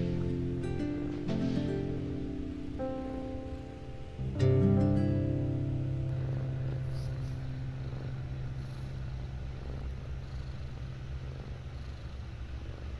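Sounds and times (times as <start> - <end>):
guitar chord: 0.0 - 9.8
cat purring: 0.0 - 12.9.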